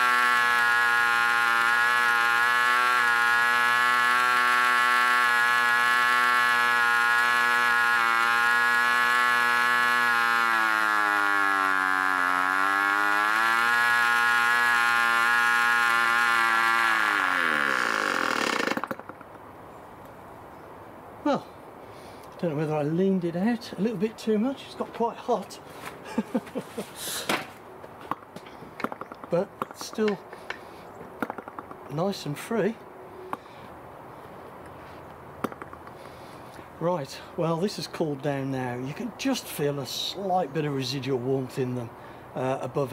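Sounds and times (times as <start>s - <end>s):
model engine running flat out: 0.0s - 19.2s.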